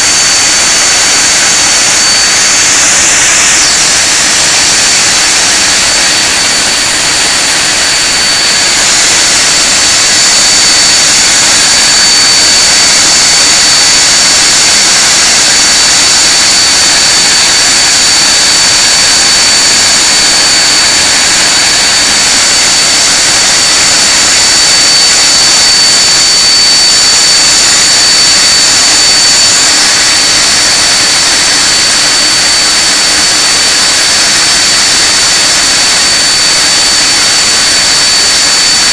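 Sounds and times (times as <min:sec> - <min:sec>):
jet engines rushing: 0:00.0 - 0:13.8, 0:19.3 - 0:34.9
high-pitched engine whine: 0:00.0 - 0:38.9.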